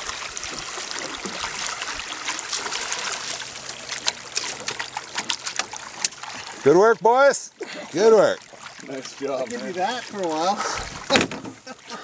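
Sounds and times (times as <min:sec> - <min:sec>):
net swishing through water: 0:00.0 - 0:06.7, 0:07.8 - 0:12.0
water dripping: 0:00.0 - 0:07.0
water splashing against boat: 0:00.0 - 0:12.0.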